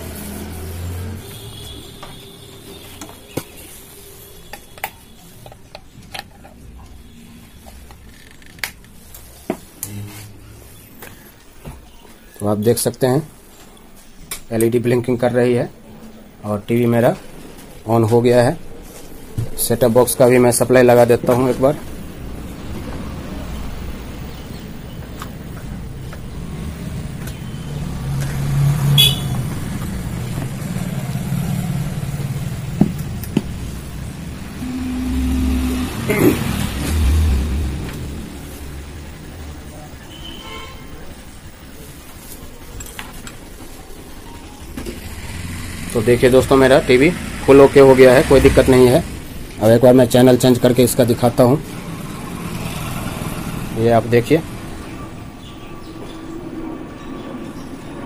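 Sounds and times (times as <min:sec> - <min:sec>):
vehicle engine running: 0:26.0 - 0:40.2
short horn toot: 0:29.0 - 0:29.3, 0:34.5 - 0:38.8.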